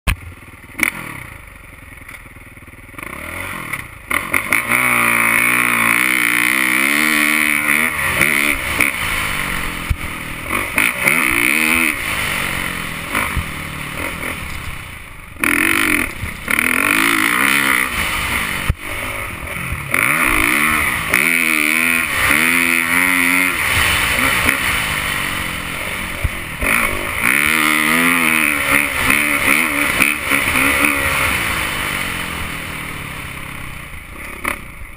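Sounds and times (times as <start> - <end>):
dirt bike engine revving: 0.1 - 34.9.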